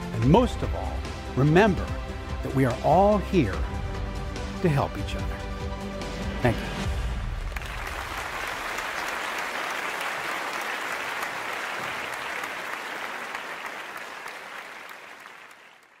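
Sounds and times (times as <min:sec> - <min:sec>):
audience applauding: 0:07.2 - 0:16.0.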